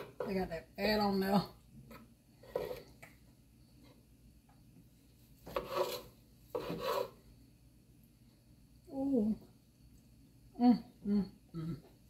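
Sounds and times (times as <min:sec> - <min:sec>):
knife sawing on cutting board: 0:05.5 - 0:07.2.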